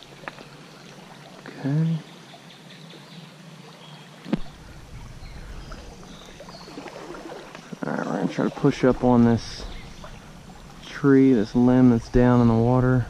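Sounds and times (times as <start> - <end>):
creek running over stones: 0.0 - 13.0
water sloshing around legs: 4.4 - 12.9.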